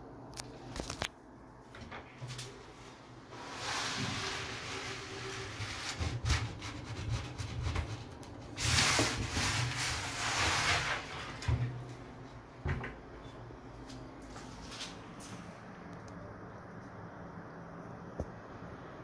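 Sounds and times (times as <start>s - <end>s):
glass door rubbing: 3.3s - 7.8s.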